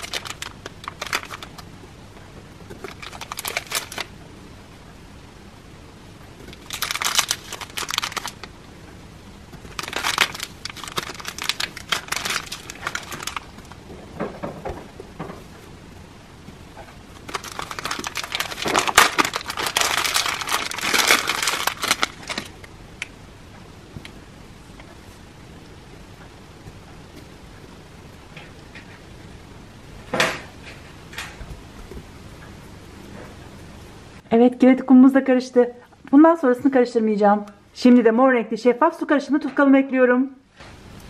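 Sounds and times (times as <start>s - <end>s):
plastic bag crinkling: 0.0s - 1.7s, 2.7s - 4.1s, 6.4s - 8.5s, 9.6s - 14.8s, 17.1s - 23.1s.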